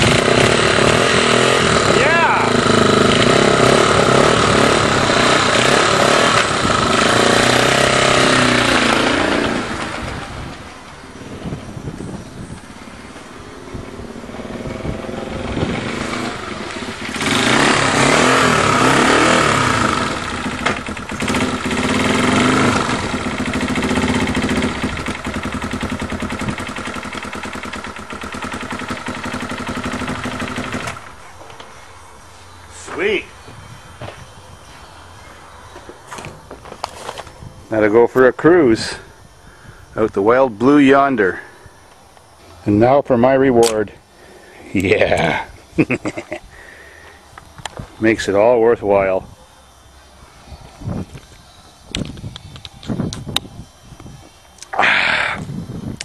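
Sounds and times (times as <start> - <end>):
motorcycle engine revving: 0.0 - 37.0, 44.7 - 46.8, 54.5 - 56.0.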